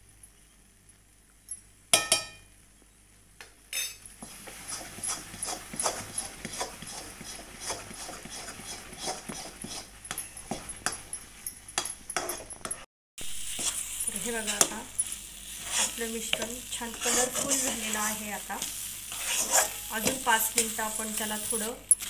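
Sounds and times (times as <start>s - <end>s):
sharp metallic knocks with ring: 2.0s - 2.5s
spoon scraping a pan: 3.8s - 11.2s, 11.8s - 12.8s, 13.4s - 20.8s.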